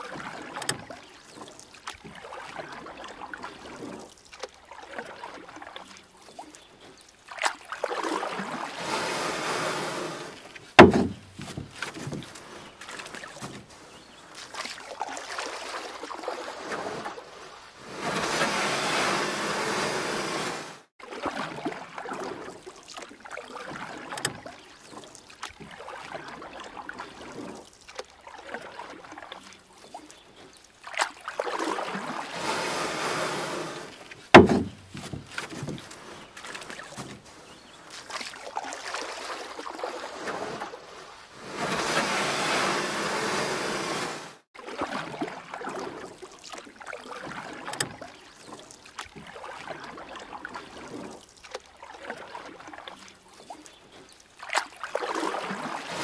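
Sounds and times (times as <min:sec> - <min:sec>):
paddle strokes splashing water: 0:00.0 - 0:56.0
rushing water: 0:00.0 - 0:56.0
sharp knock: 0:10.8 - 0:11.3, 0:34.4 - 0:34.8.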